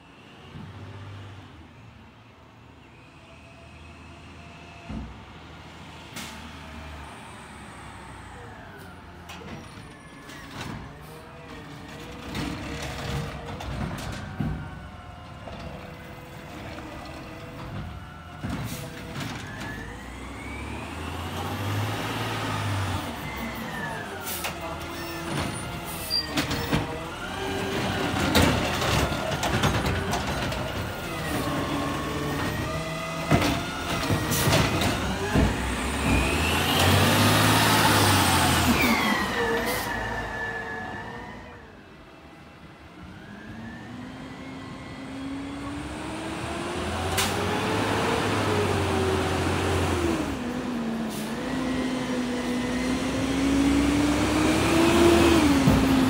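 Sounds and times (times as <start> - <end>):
truck engine revving: 15.0 - 41.8, 43.0 - 56.0.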